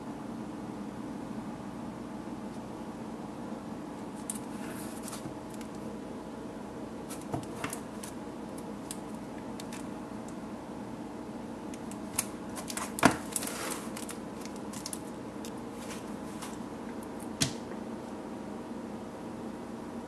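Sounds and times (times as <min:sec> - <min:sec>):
background hum: 0:00.0 - 0:20.0
cellophane crinkling: 0:04.2 - 0:05.8, 0:11.8 - 0:16.6.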